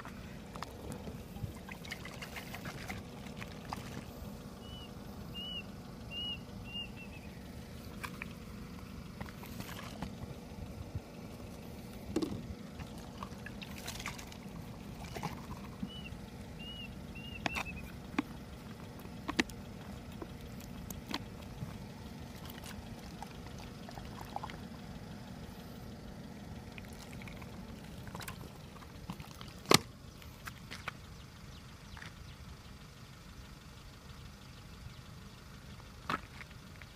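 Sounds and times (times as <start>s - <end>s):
steady low rumble: 0.0s - 36.9s
high chirps: 4.4s - 9.0s, 14.6s - 22.2s.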